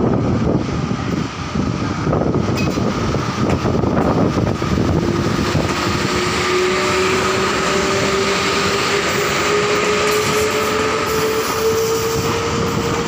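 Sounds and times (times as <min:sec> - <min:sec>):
electric locomotive passing: 0:00.0 - 0:13.0
low whine rising in pitch: 0:03.6 - 0:12.8.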